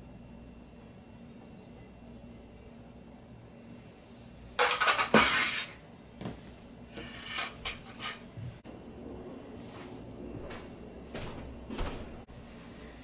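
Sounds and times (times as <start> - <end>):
utensils clinking and knocking: 4.6 - 5.8.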